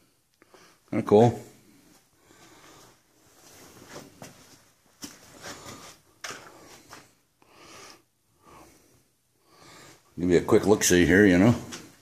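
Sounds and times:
faint scuffs: 0:01.8 - 0:07.2.

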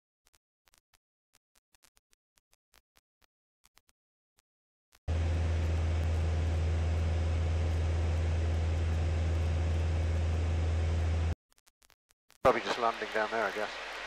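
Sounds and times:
light aircraft engine drone: 0:05.1 - 0:11.4.

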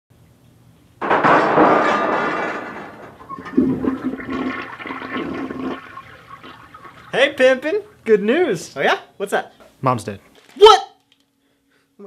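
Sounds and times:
toilet flushing: 0:02.4 - 0:08.1
water gurgling and refilling: 0:03.1 - 0:08.0.

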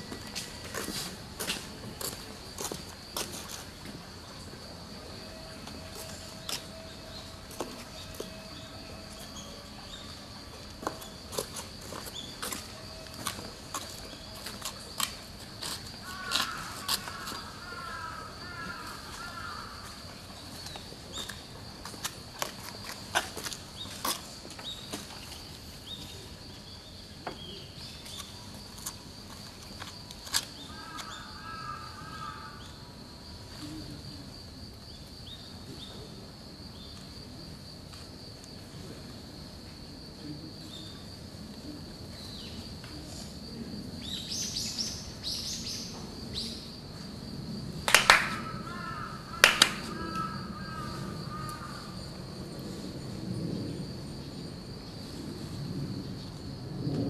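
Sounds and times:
loud sharp claps: 0:47.8 - 0:48.5, 0:49.4 - 0:49.9.

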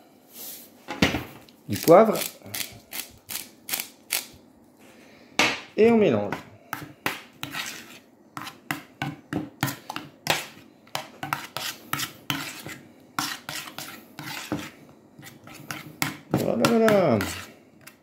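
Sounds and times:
metal spoon scraping a metal dish: 0:07.4 - 0:08.8, 0:09.6 - 0:18.0.

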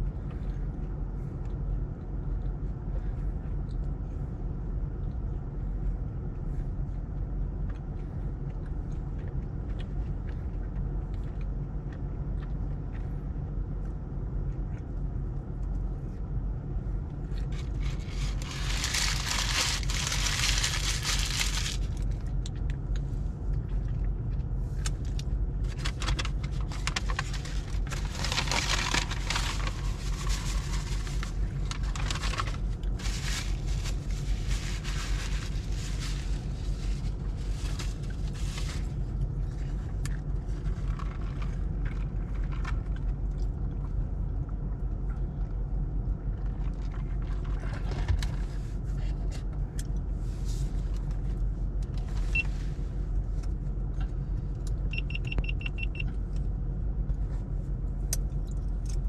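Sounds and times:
car rumble inside cabin: 0:00.0 - 0:59.0
loud rustling crackling: 0:17.8 - 0:22.0.

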